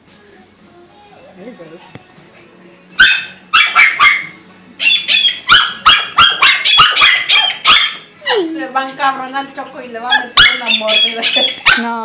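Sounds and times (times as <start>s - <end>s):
small dog barking: 3.0s - 8.1s, 10.1s - 12.0s.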